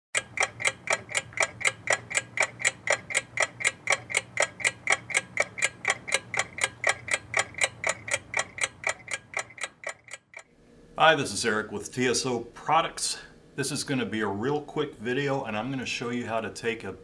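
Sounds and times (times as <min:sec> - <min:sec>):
clock ticking: 0:00.2 - 0:10.5.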